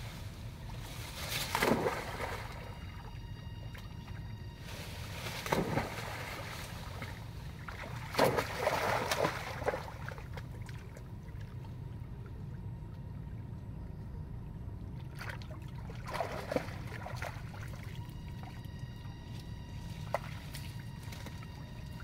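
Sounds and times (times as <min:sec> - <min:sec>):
low background noise: 0:00.0 - 0:22.0
monkeys splashing in water: 0:01.4 - 0:02.8, 0:05.1 - 0:11.6, 0:15.1 - 0:18.0.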